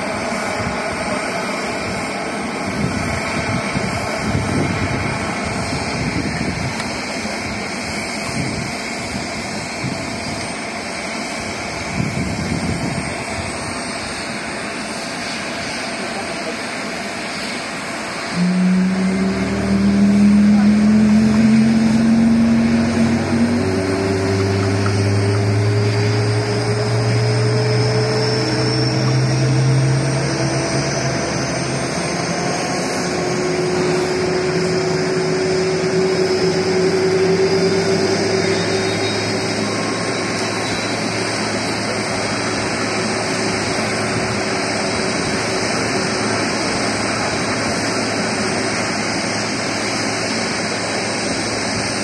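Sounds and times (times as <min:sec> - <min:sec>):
jet engine spooling up: 0:00.0 - 0:52.0
jet noise rush: 0:00.0 - 0:52.0.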